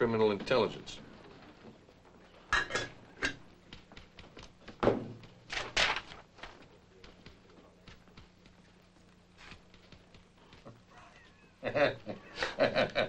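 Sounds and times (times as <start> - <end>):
objects knocking on a desk: 3.8 - 5.4.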